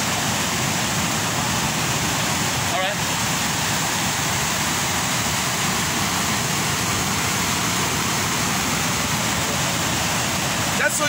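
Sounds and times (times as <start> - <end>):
water rushing over rocks: 0.0 - 11.0.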